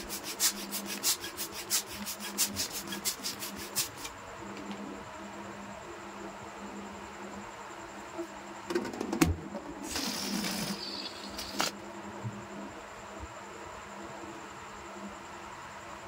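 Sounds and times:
air hissing out of balloon: 0:00.0 - 0:04.1, 0:09.8 - 0:11.7
balloon rubbing and squeaking: 0:09.8 - 0:11.7.

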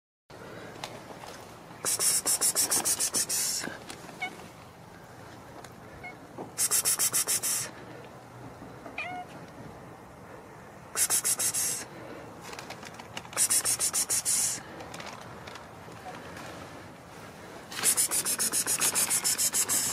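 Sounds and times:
person calling a cat: 0:01.8 - 0:04.5, 0:06.0 - 0:07.7, 0:09.0 - 0:09.4, 0:10.9 - 0:11.9, 0:13.4 - 0:14.6, 0:17.8 - 0:19.9
cat meowing softly: 0:09.0 - 0:09.4.

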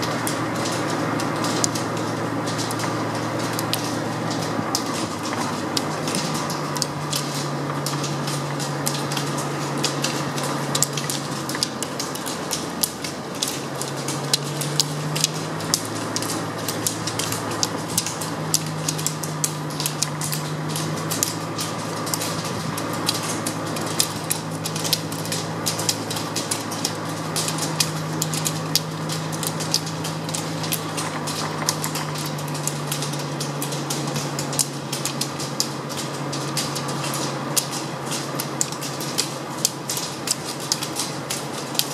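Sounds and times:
ski poles clicking on asphalt: 0:00.0 - 0:41.9
steady low hum: 0:00.0 - 0:41.9.

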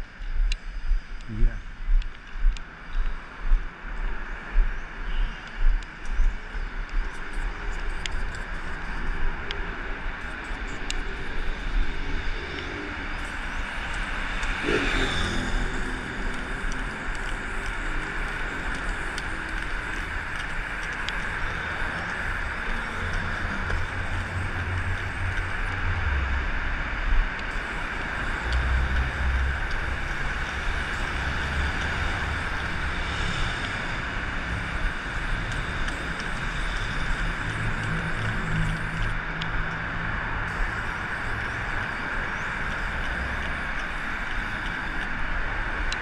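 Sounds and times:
traffic rumbling: 0:00.0 - 0:46.0
spray paint can hissing: 0:10.2 - 0:25.8, 0:27.5 - 0:39.2, 0:40.5 - 0:45.1.

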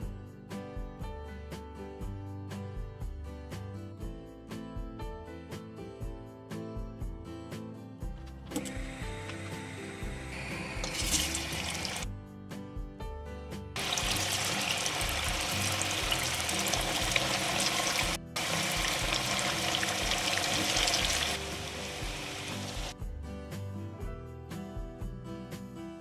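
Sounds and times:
background music: 0:00.0 - 0:26.0
potatoes sizzling in hot oil: 0:08.9 - 0:12.0, 0:13.8 - 0:22.9.

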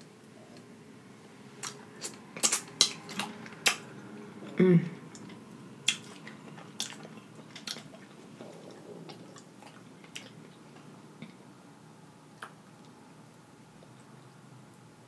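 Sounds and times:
sharp wet mouth clicks: 0:01.6 - 0:03.9
chewing food: 0:01.6 - 0:04.1, 0:05.0 - 0:11.5, 0:12.3 - 0:14.8.

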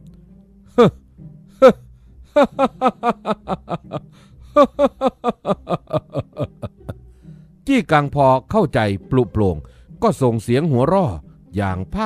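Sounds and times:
soft background music: 0:00.0 - 0:12.0
man laughing: 0:00.8 - 0:01.0, 0:01.6 - 0:07.0.

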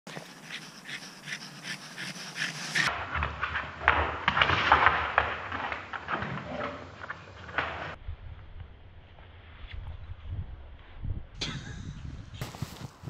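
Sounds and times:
claws clicking: 0:00.1 - 0:02.9
dog panting: 0:00.1 - 0:02.9.

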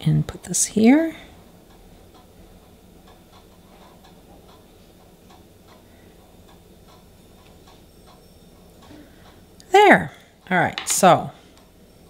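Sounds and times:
low steady hum: 0:00.0 - 0:12.0
faint ticking clicks: 0:01.6 - 0:08.2.

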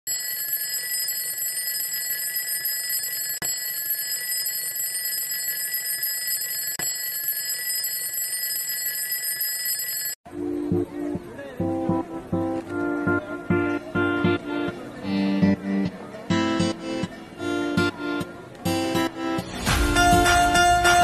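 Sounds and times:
alarm clock ringing: 0:00.1 - 0:10.2.

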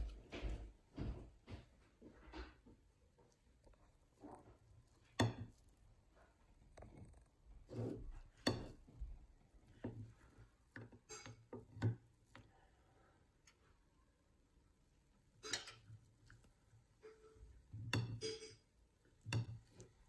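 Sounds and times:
knife cutting pancake: 0:07.6 - 0:08.9.

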